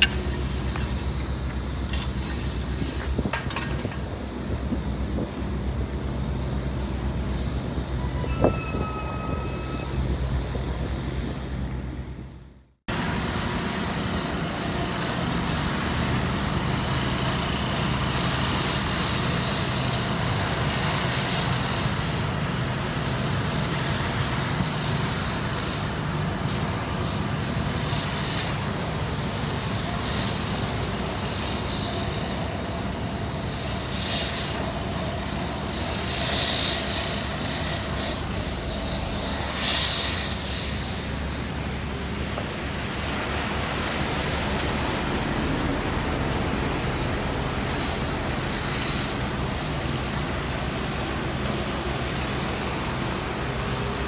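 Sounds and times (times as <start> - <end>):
diesel engine hum: 0.0 - 54.0
road machinery drone: 0.0 - 54.0
traffic: 0.0 - 54.0
brief high tone: 8.0 - 10.2.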